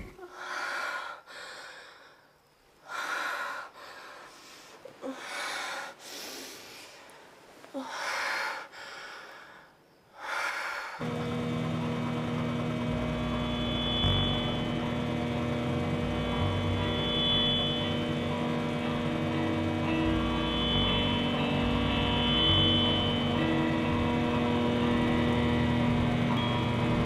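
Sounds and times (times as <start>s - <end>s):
woman breathing heavily: 0.0s - 11.0s
steady drone: 11.0s - 27.0s.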